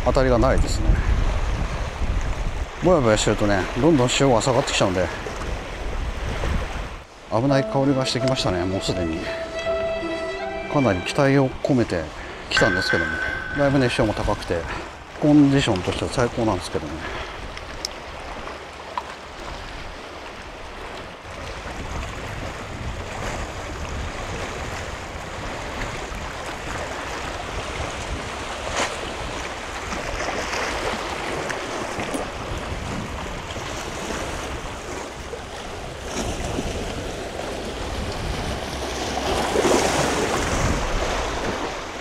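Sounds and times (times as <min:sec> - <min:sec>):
wind buffeting microphone: 0:00.0 - 0:02.9, 0:21.3 - 0:30.4, 0:32.0 - 0:41.8.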